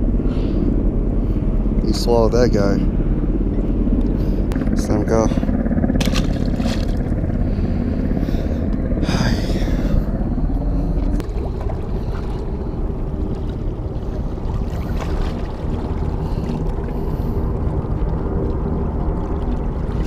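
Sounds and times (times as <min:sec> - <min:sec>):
steady low rumble: 0:00.0 - 0:20.0
fish splashing into water: 0:06.0 - 0:07.1.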